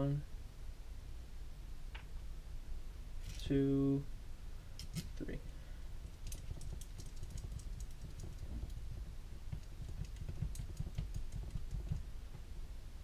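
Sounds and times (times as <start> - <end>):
small metal parts clicking: 4.8 - 5.2, 6.0 - 8.8, 9.6 - 12.0.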